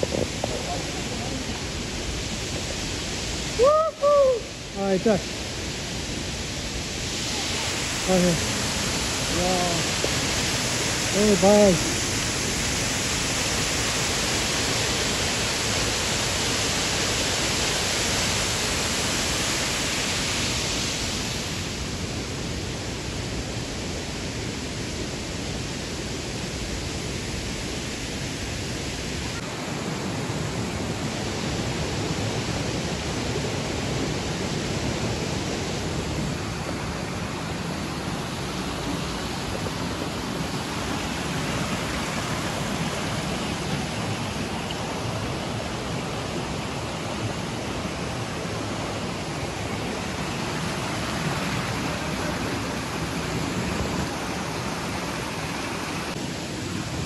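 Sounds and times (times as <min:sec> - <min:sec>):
stream running over stones: 0:00.0 - 0:57.0.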